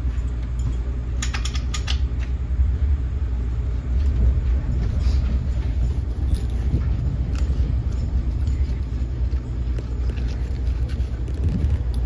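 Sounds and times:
train coach rumble: 2.1s - 12.0s
interior creaks and rattles: 3.4s - 12.0s.

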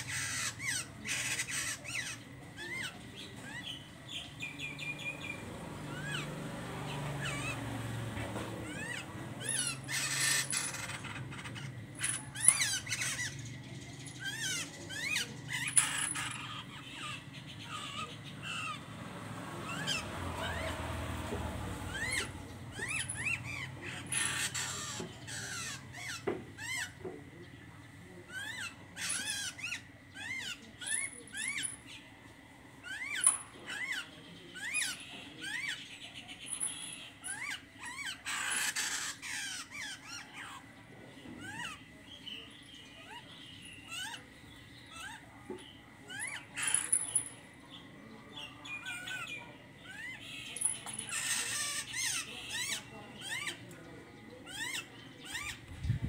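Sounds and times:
songbirds chirping: 0.0s - 56.0s.

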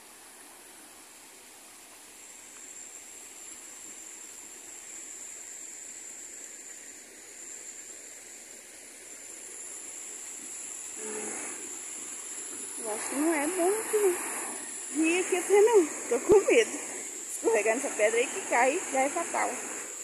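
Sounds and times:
water rushing over rocks: 10.2s - 20.0s
thin high whine: 10.9s - 20.0s.

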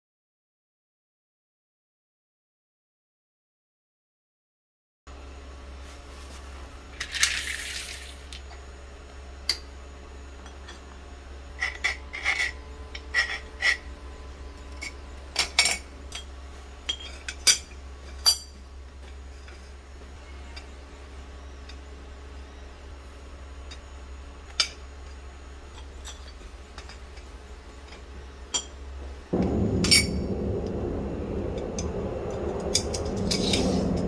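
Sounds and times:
metal parts clinking on stone floor: 7.0s - 8.5s, 11.6s - 13.9s, 16.9s - 19.7s, 25.8s - 28.8s
metal rattle: 29.4s - 34.0s.

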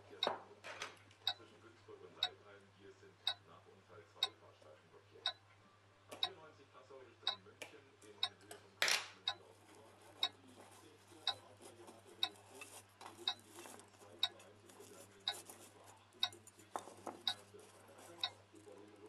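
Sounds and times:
clock ticking: 10.2s - 10.4s, 11.2s - 11.4s, 12.2s - 12.4s, 13.2s - 13.4s, 18.2s - 18.4s.

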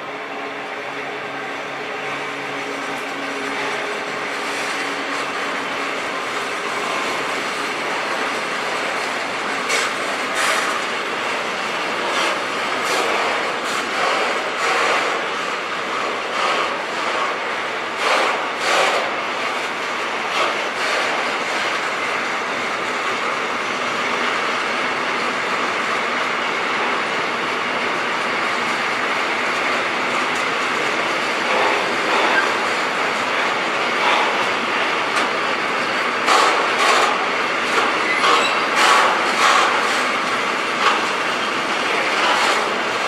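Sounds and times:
freight wagon wheels rushing: 29.2s - 43.0s.

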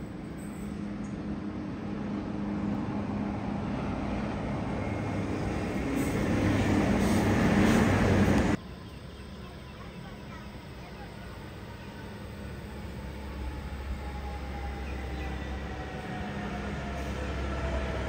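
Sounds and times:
diesel train engines humming: 0.0s - 18.0s
train wheels on rails: 4.2s - 8.6s.

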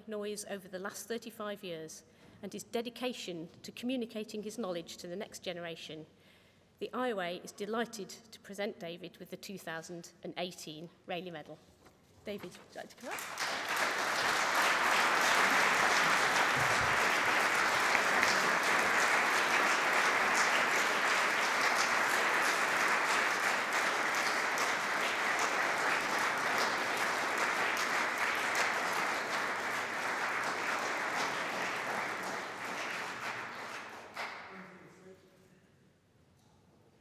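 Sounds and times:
audience applauding: 13.0s - 34.6s.

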